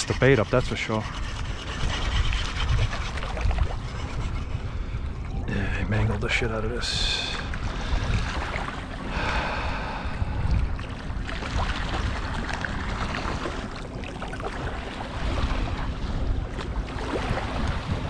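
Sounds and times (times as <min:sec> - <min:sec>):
wind buffeting microphone: 0:00.0 - 0:18.0
small waves lapping: 0:06.9 - 0:18.0.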